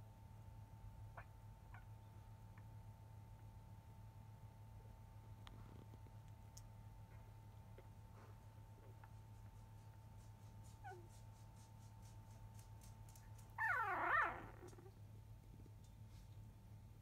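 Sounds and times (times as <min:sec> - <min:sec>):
puppy whimpering: 0:10.7 - 0:11.2, 0:13.6 - 0:15.0.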